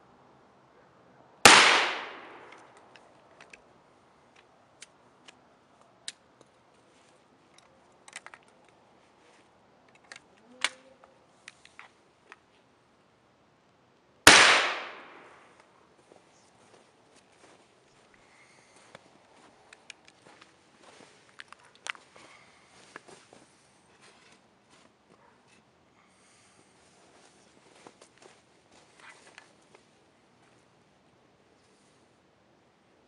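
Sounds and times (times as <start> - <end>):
shotgun blasts: 1.5 - 2.6, 14.3 - 15.4.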